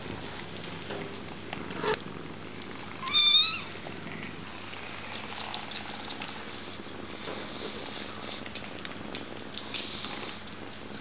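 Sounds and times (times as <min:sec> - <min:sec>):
kitten mewing: 0:03.0 - 0:03.7.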